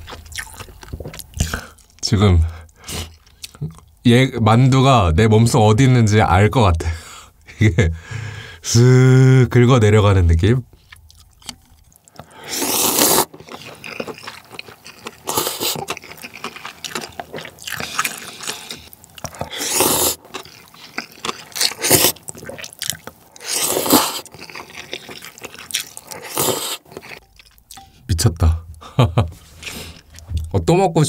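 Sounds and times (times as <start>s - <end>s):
chewing: 0.0s - 4.0s, 10.7s - 28.0s, 29.4s - 30.5s
noodles being slurped: 12.2s - 27.2s.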